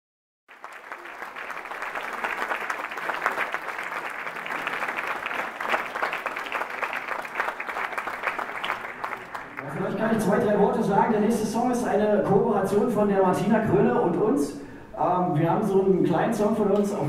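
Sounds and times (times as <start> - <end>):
audience applauding: 0.5 - 10.4.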